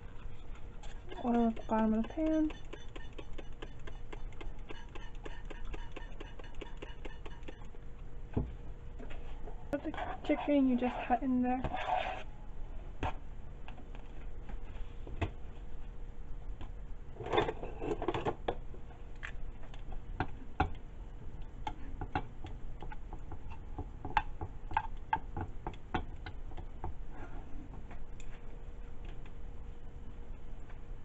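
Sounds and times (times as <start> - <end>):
utensil scraping pan: 9.8 - 12.3.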